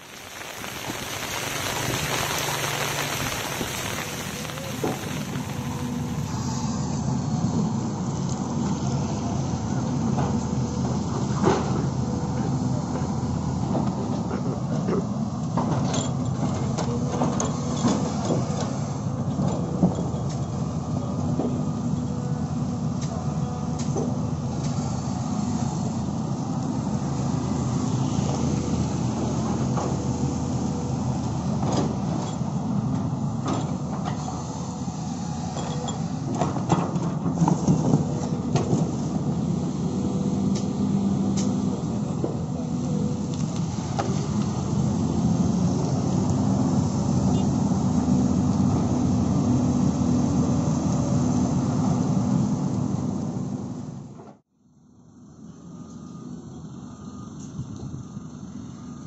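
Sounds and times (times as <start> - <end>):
bulldozer engine running: 0.0 - 54.2
excavator diesel engine running: 0.0 - 54.2.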